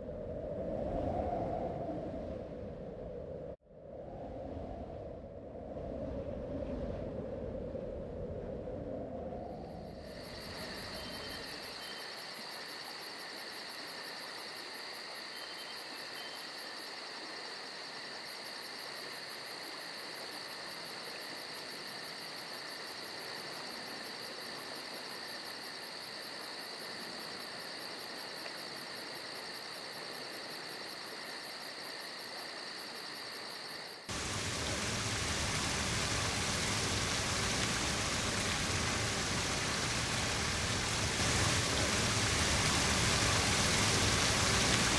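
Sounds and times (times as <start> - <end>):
steady hiss: 9.4 - 44.9
stream water over rocks: 34.1 - 44.9.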